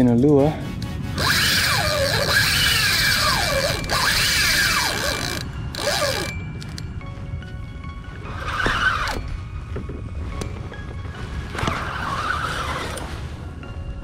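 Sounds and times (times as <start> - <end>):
fishing reel drag buzzing: 1.2 - 6.8.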